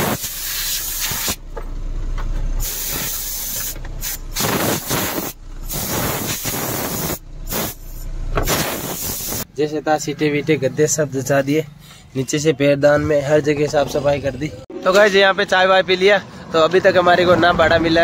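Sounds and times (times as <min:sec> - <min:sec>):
compressed air hissing blasts: 0:00.0 - 0:01.4, 0:02.6 - 0:09.5.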